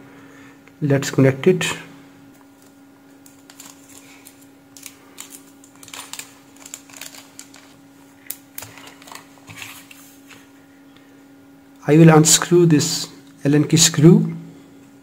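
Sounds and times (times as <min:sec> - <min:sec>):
faint steady hum: 0:00.0 - 0:15.0
plastic sleeve clicks and crinkling: 0:02.5 - 0:10.0.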